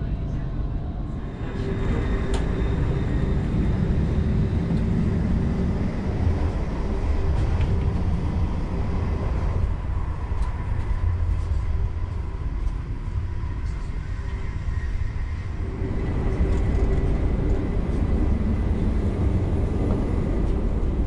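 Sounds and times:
train rumbling: 0.0s - 21.0s.

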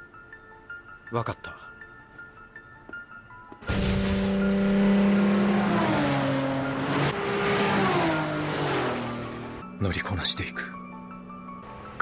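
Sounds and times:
sports car engine revving high: 3.7s - 9.6s.

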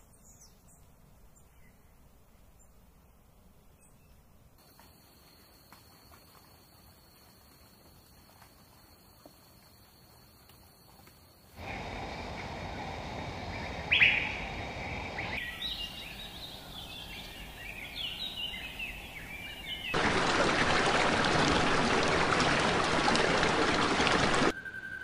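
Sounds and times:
loud steady rushing noise: 11.6s - 18.1s, 20.0s - 24.6s
wild birds chirping: 11.6s - 24.5s.

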